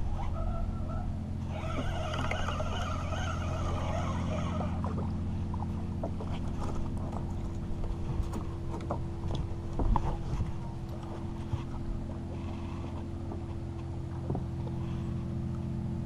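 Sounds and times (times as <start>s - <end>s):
boat motor idling: 0.0s - 16.0s
fishing reel whirring: 1.4s - 5.0s.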